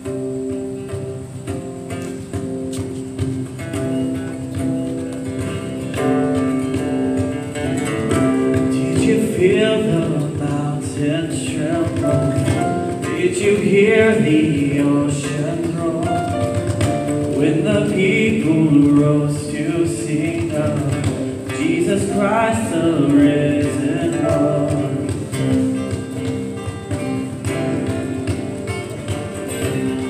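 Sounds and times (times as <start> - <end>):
keyboard and acoustic guitars: 0.0 - 30.0
voices singing: 8.2 - 16.6, 17.3 - 25.6.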